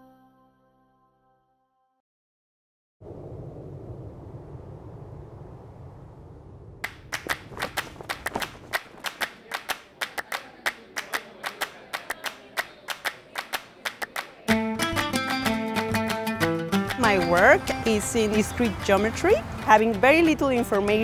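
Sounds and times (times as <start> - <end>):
audience applause: 6.8 - 14.5
plucked-string music: 14.5 - 21.0.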